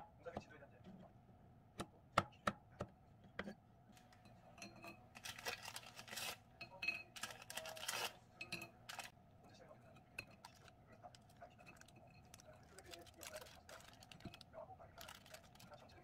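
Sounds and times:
plastic wrapper crinkling: 5.2 - 6.4, 7.2 - 8.2, 8.9 - 9.1, 10.4 - 16.0.

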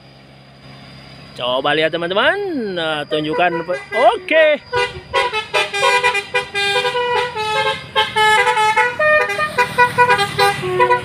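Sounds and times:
bus musical horn playing tune: 3.2 - 11.0.

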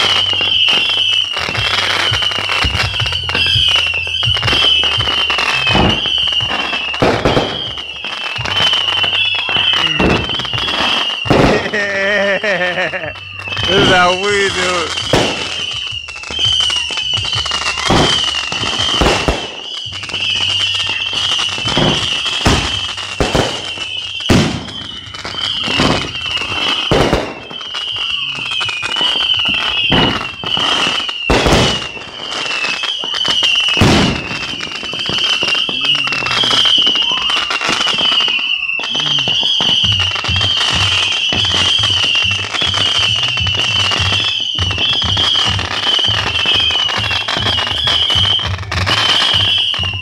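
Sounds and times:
fireworks bangs and crackle: 0.0 - 50.0
high warbling tone: 38.5 - 39.8.

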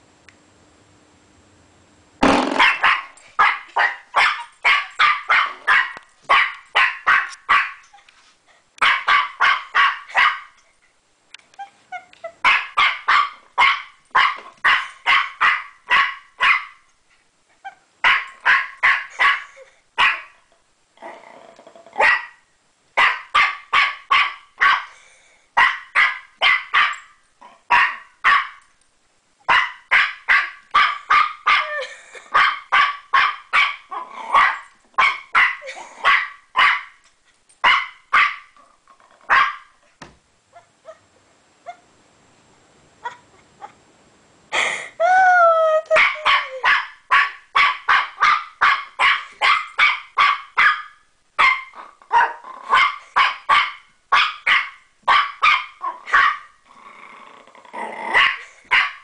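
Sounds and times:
puppy barking: 2.5 - 7.8, 8.8 - 10.6, 12.4 - 16.8, 18.0 - 20.4, 22.0 - 22.4, 23.0 - 24.9, 25.6 - 27.1, 27.7 - 28.6, 29.5 - 37.0, 37.6 - 38.5, 39.3 - 39.7, 46.0 - 56.5, 58.2 - 59.0.

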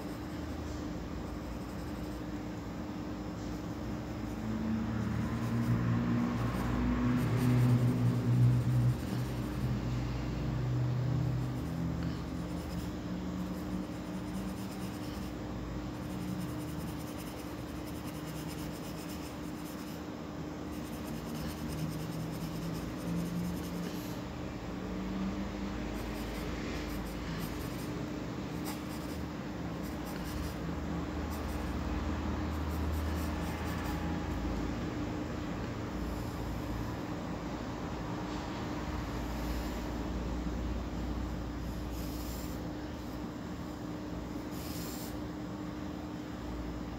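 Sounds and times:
steady low hum: 0.0 - 46.9
pencil scratching on paper: 6.4 - 9.7, 11.3 - 15.4, 16.0 - 20.0, 20.7 - 24.2, 26.0 - 28.0, 28.6 - 30.6.

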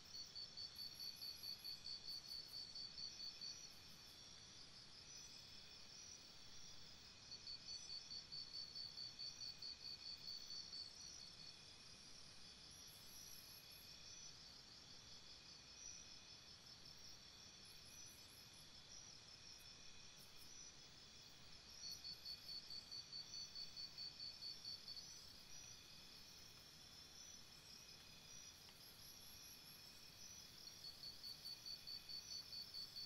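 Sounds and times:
pulsing insect chirp: 5.0 - 33.0
insect trills: 15.7 - 33.0.

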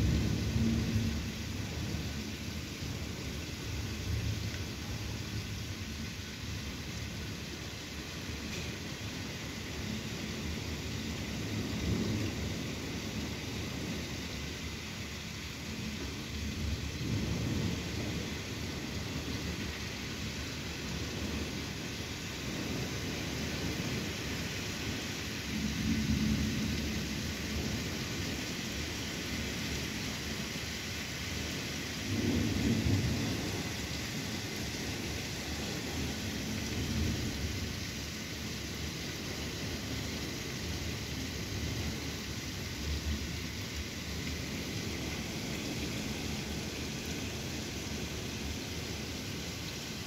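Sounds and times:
heavy rain pouring: 0.0 - 50.0
rolls of thunder: 32.0 - 37.7.

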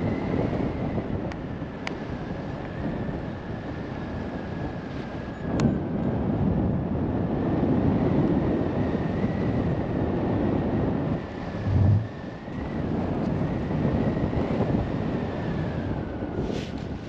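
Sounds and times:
wind roaring on microphone: 0.0 - 17.0
low buffeting thump: 11.6 - 12.2.

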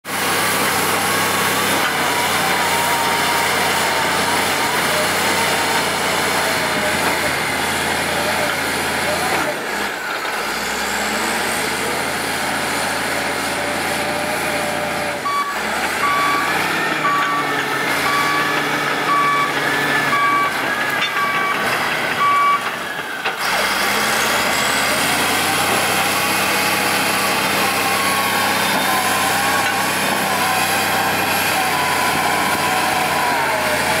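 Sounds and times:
bulldozer diesel engine running: 0.1 - 34.0
backup alarm beeping: 15.2 - 22.7.

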